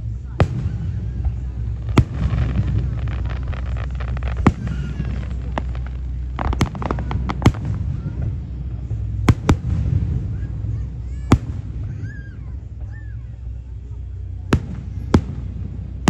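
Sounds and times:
low rumble of booms: 0.0 - 16.0
firework shells bursting: 1.7 - 7.9.

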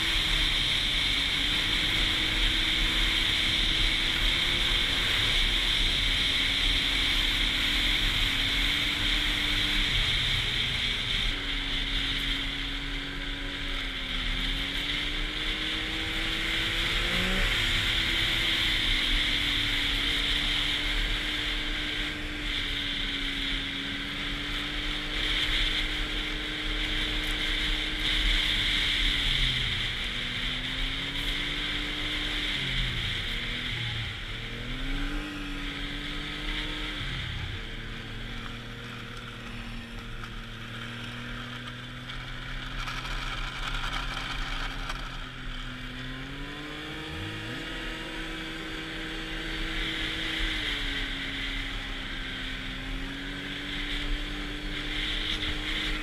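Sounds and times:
snowmobile engine running: 0.0 - 56.0.

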